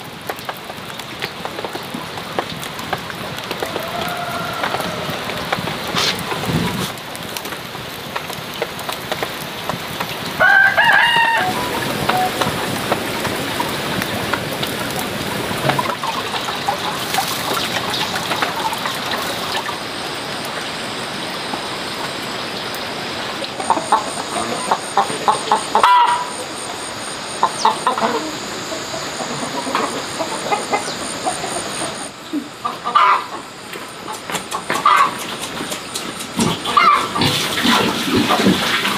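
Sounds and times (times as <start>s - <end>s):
steady background hiss: 0.0s - 38.9s
chickens clucking: 10.5s - 19.8s, 23.1s - 38.9s.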